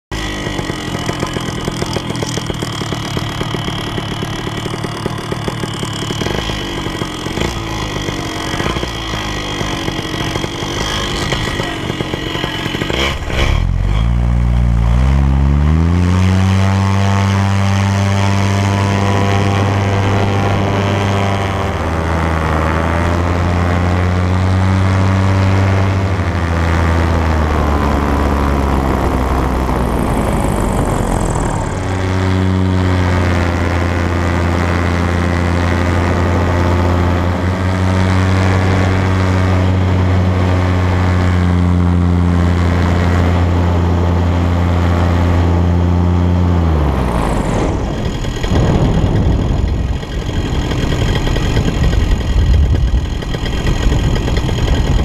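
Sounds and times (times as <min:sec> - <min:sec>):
paramotor engine and propeller: 0:00.1 - 0:55.0
wind noise: 0:46.7 - 0:55.0.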